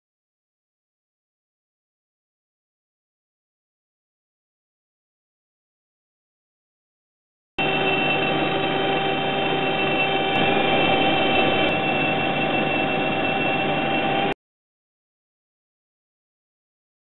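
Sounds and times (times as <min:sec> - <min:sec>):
lathe spindle whirring: 0:07.6 - 0:14.4.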